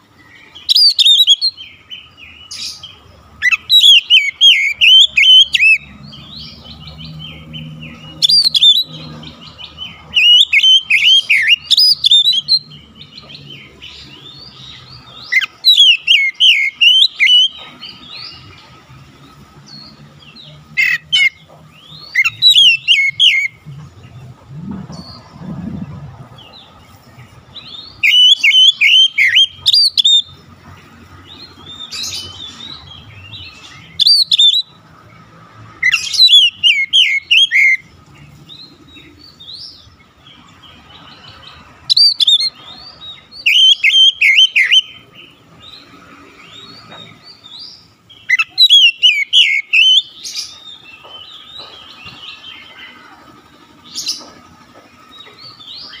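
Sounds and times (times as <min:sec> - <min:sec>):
bird singing whistled notes: 0:00.3 - 0:18.6, 0:19.7 - 0:26.6, 0:27.5 - 0:30.3, 0:31.3 - 0:34.8, 0:35.8 - 0:37.9, 0:41.0 - 0:45.8, 0:46.4 - 0:53.0
soft bird calls: 0:35.7 - 0:56.0.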